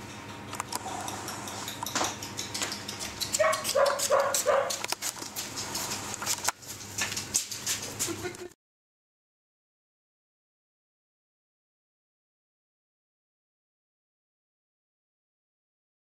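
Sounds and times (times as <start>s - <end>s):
paws clicking on tiled floor: 0.5s - 8.6s
puppies yipping: 1.1s - 4.9s.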